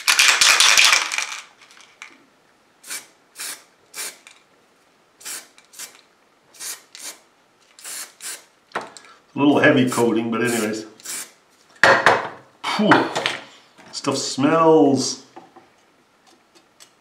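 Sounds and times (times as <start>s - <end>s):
spray paint can hissing: 2.8s - 4.4s, 5.2s - 6.0s, 6.6s - 7.2s, 7.8s - 8.5s, 10.5s - 11.4s.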